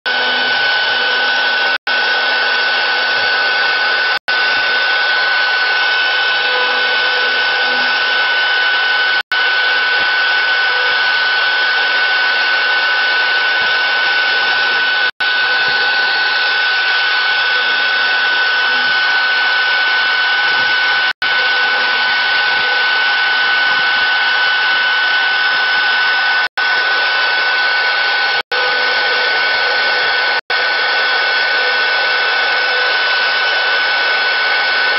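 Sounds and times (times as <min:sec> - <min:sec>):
router spindle whine milling wood: 0:00.1 - 0:34.9.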